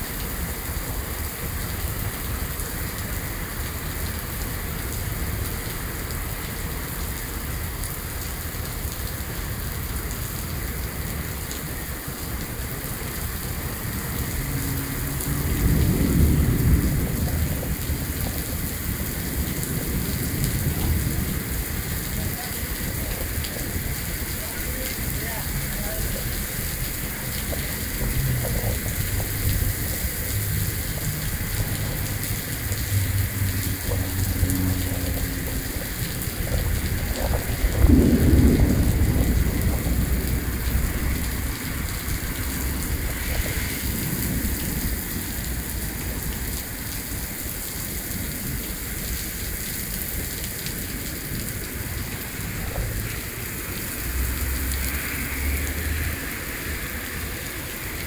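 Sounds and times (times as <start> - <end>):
heavy rain: 0.0 - 58.0
thunder rumbling: 13.2 - 46.4.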